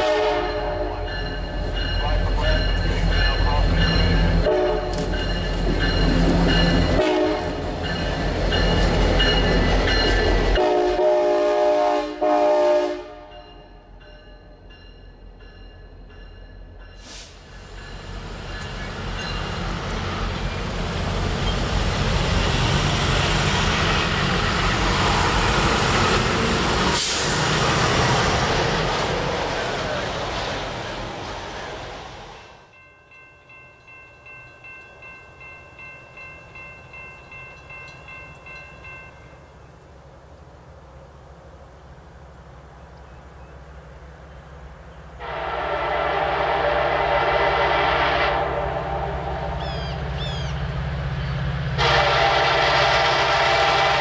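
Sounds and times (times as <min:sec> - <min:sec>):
train horn chord: 0:00.0 - 0:01.3, 0:04.4 - 0:05.1, 0:06.9 - 0:07.7, 0:10.5 - 0:13.6, 0:45.2 - 0:50.4, 0:51.6 - 0:54.0
crossing warning bell ringing: 0:00.0 - 0:11.0, 0:13.2 - 0:17.1, 0:17.8 - 0:19.7, 0:32.4 - 0:39.6
diesel locomotive engine rumble: 0:00.0 - 0:54.0
train passing at speed: 0:00.0 - 0:54.0.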